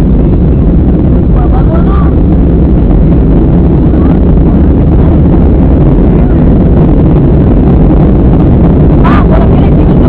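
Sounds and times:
jet engines droning: 0.0s - 10.0s.

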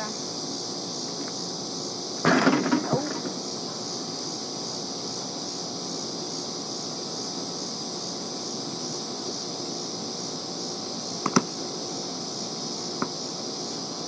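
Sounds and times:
steady high hiss: 0.0s - 14.0s
basketball clattering on backboard and rim: 2.2s - 3.4s.

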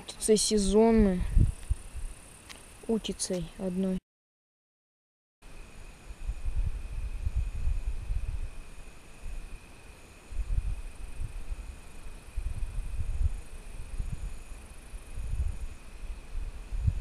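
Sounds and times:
high insect trill: 0.0s - 4.0s, 5.5s - 17.0s
wind buffeting microphone: 0.3s - 2.2s, 6.2s - 9.6s, 10.3s - 17.0s.

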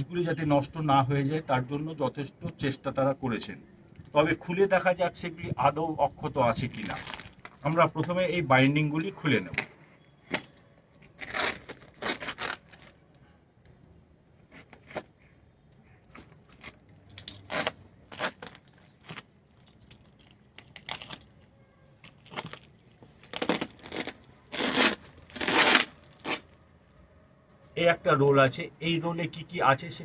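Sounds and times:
packing tape ripping: 6.8s - 8.2s, 10.3s - 13.0s, 16.1s - 26.6s.

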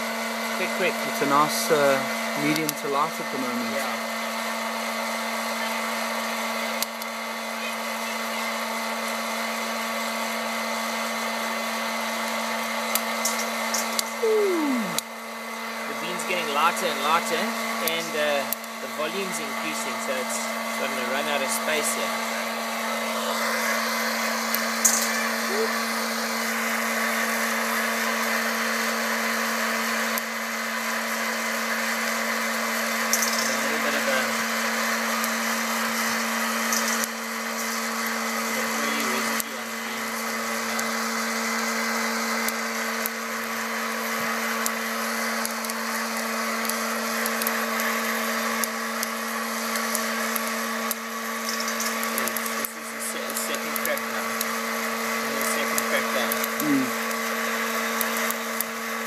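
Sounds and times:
fan rushing hot air: 0.0s - 7.9s, 8.5s - 59.0s
motor hum: 13.3s - 16.1s, 34.4s - 59.0s.

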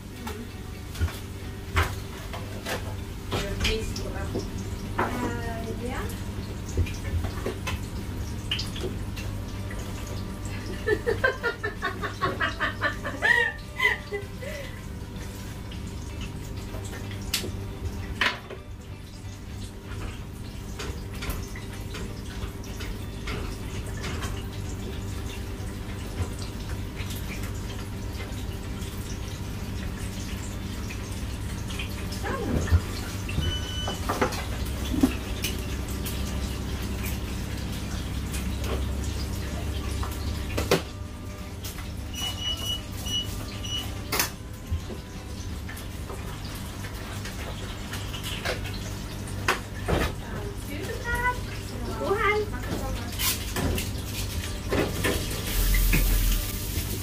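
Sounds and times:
kitchen equipment humming: 0.0s - 57.0s.

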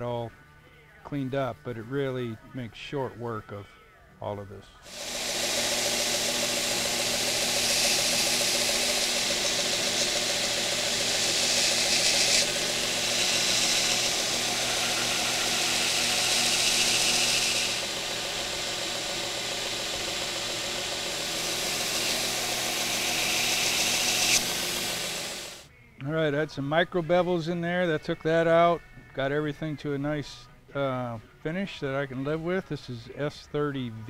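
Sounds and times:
belt grinder motor running: 4.9s - 25.6s.

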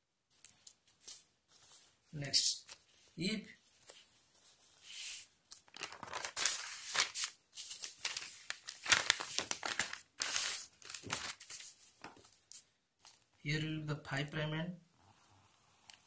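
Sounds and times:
paper rustling and crinkling: 3.7s - 13.2s.

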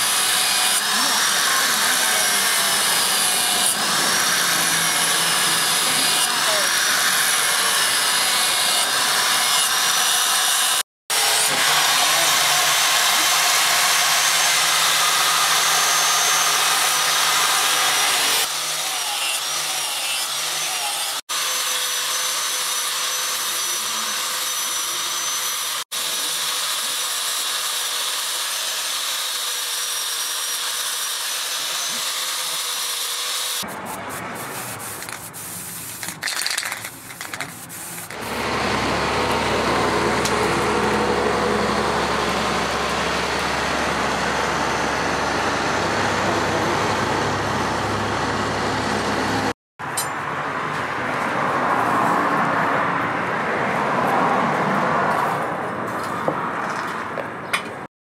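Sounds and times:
angle grinder grinding steel: 0.0s - 50.2s
rubbing and handling noise: 33.7s - 38.2s.

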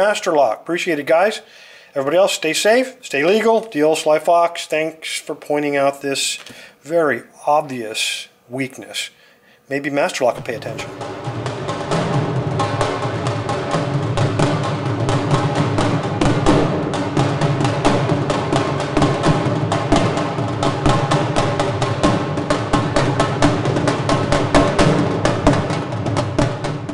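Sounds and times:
drums played with sticks: 10.4s - 26.9s.

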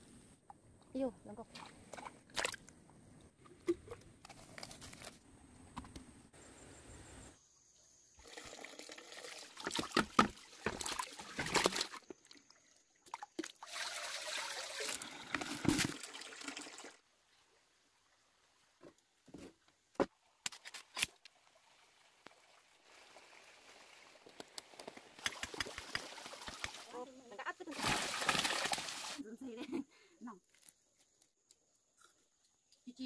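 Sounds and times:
water pouring into basin: 8.2s - 17.0s, 27.7s - 29.2s
fish splashing in water: 27.7s - 29.2s.

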